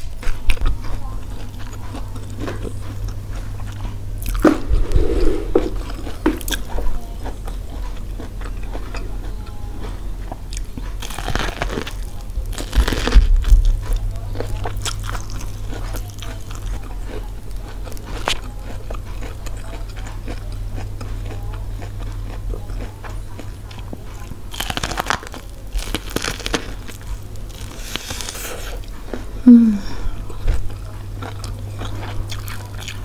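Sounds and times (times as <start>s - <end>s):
chewing corn on the cob: 0.0s - 4.7s, 5.6s - 29.4s, 30.2s - 33.0s
low electrical hum: 0.0s - 33.0s.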